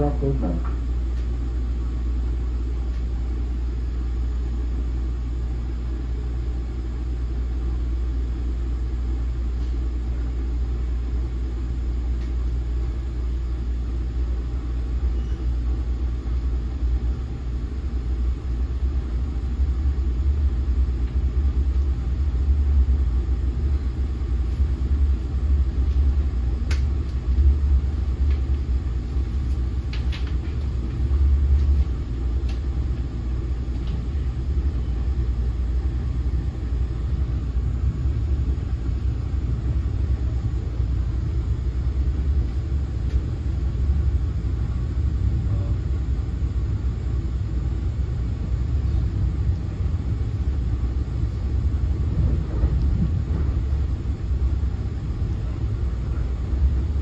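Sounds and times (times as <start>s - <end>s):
train coach rumble: 0.0s - 1.0s, 16.9s - 46.8s, 47.5s - 57.0s.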